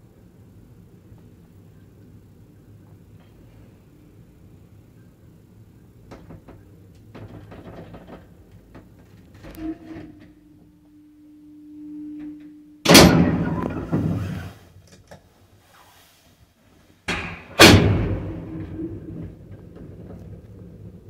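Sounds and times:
lift hum: 0:00.0 - 0:21.0
lift doors banging shut: 0:12.8 - 0:14.6, 0:17.1 - 0:21.0.

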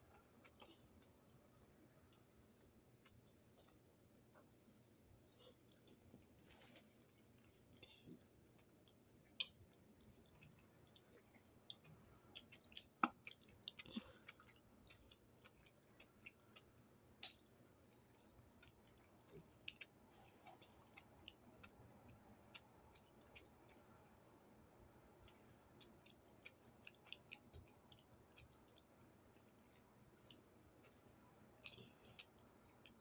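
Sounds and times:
person chewing: 0:07.0 - 0:24.0, 0:25.2 - 0:33.0.

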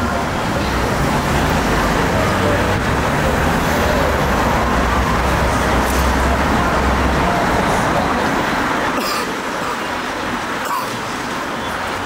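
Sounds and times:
vehicle rumble passing: 0:00.0 - 0:09.0
hiss of street noise: 0:00.0 - 0:12.0.

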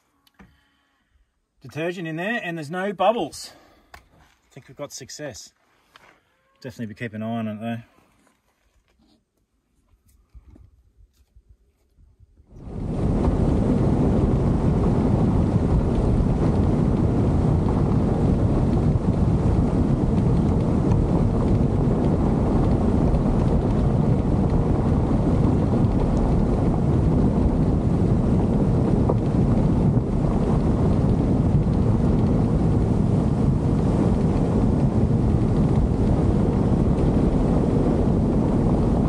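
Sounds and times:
wind rush on microphone: 0:10.2 - 0:39.0
vehicle rumble on dirt track: 0:12.5 - 0:39.0.

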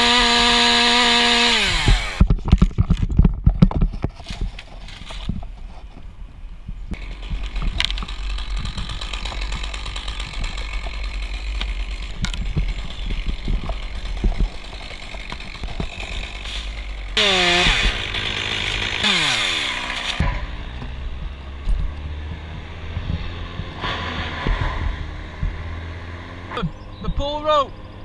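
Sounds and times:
chainsaw idling and revving: 0:00.0 - 0:02.3, 0:07.0 - 0:20.8.

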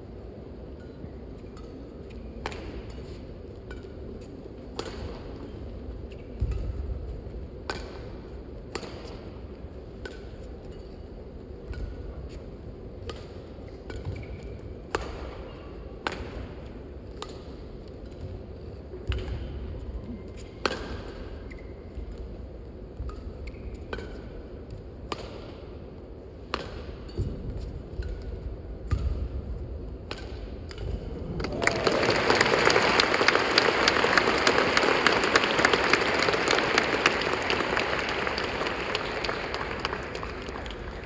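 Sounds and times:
racket striking shuttlecock: 0:01.6 - 0:31.6
crowd applauding: 0:31.4 - 0:41.0.

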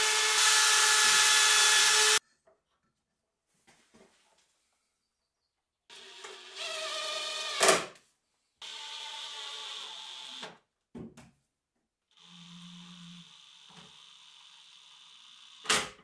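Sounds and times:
cordless drill motor whining: 0:00.0 - 0:02.2, 0:12.2 - 0:15.6.

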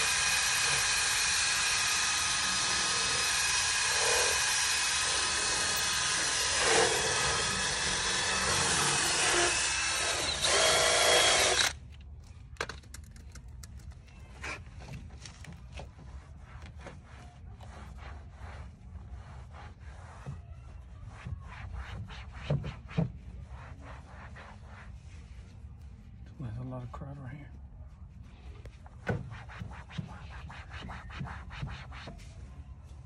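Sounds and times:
drill spinning brush head: 0:00.0 - 0:11.8
cloth rubbing and tapping vinyl: 0:11.9 - 0:26.2, 0:27.9 - 0:33.0.

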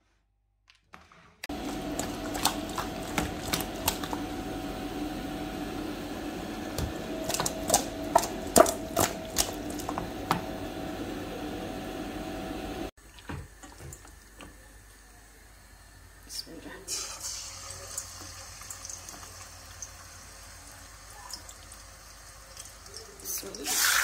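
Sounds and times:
steady hum: 0:01.5 - 0:12.9.

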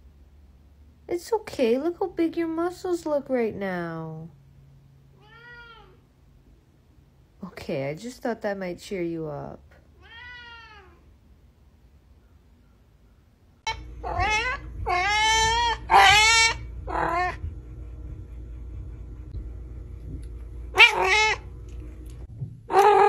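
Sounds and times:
cats meowing: 0:05.2 - 0:06.0, 0:10.0 - 0:11.0, 0:14.0 - 0:17.4, 0:20.8 - 0:21.4.

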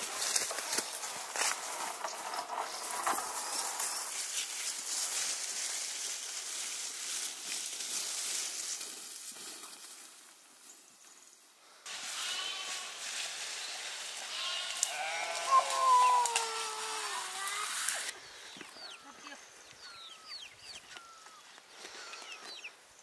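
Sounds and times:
steady hiss: 0:00.3 - 0:18.1
sheep bleating: 0:11.9 - 0:13.0, 0:14.2 - 0:17.7.

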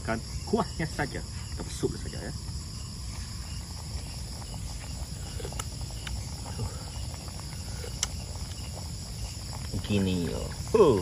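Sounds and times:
crickets and insects chirring: 0:00.0 - 0:11.0
faint clicks: 0:07.9 - 0:08.6.

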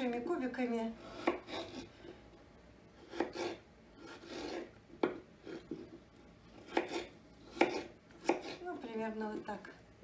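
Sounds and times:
knife cutting potatoes on wood: 0:01.0 - 0:01.9, 0:03.0 - 0:09.0.

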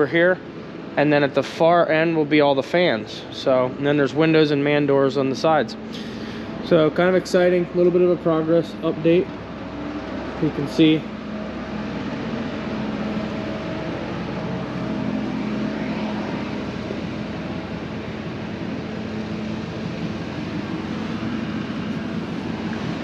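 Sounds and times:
machine running with low hum: 0:00.0 - 0:23.0.

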